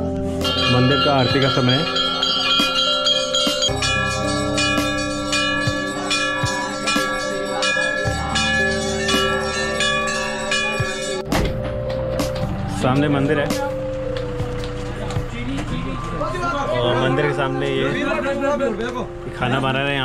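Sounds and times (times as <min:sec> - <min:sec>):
temple bells ringing: 0:00.4 - 0:12.2.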